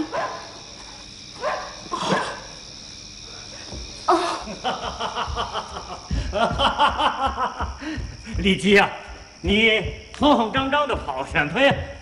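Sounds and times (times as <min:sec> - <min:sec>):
footsteps on wooden floor: 0:05.2 - 0:12.0.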